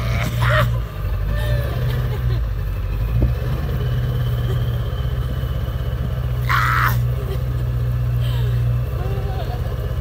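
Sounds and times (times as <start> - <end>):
diesel engine running: 0.0 - 10.0.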